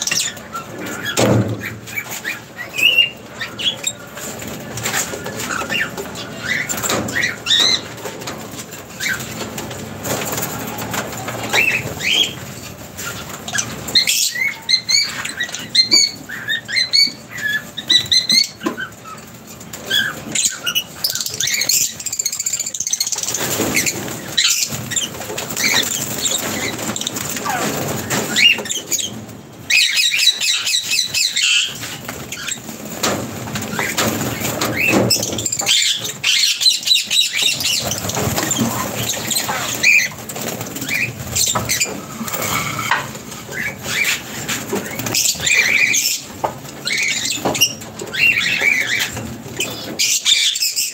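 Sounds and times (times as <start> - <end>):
birds chirping and twittering: 0.0 - 50.9.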